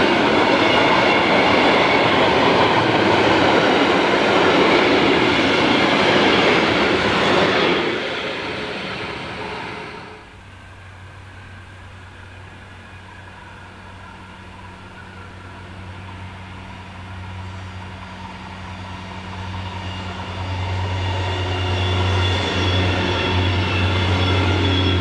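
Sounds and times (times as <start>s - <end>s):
rail noise: 0.0s - 25.0s.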